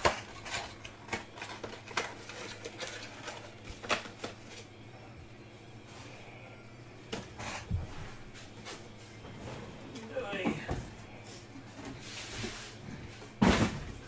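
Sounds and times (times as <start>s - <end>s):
cards and wrappers rustling: 0.0s - 4.8s.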